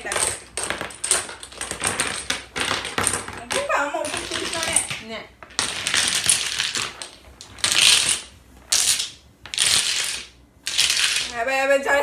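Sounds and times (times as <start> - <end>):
domino tiles clattering: 0.0 - 11.4.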